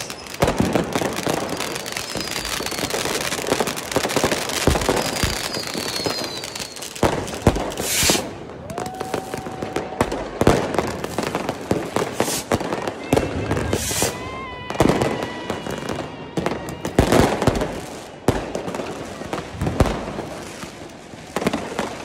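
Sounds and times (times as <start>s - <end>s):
firecrackers crackling: 0.0s - 22.0s
loud firework bangs: 0.0s - 22.0s
falling rocket whistles: 1.6s - 3.1s, 4.8s - 7.0s, 7.7s - 9.7s, 13.5s - 15.7s
held whistle tone: 5.0s - 7.0s.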